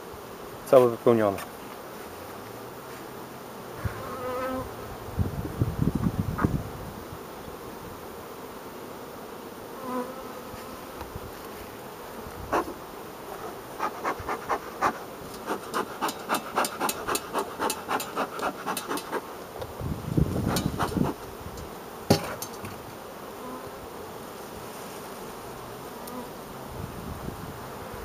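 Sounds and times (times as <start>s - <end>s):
bees buzzing: 0.0s - 28.0s
bee smoker bellows puffing: 12.3s - 23.1s.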